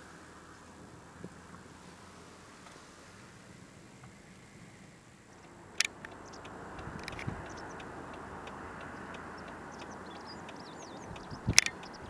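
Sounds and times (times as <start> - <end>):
faint high chirps: 5.4 - 12.0
sharp clicks: 5.4 - 12.0.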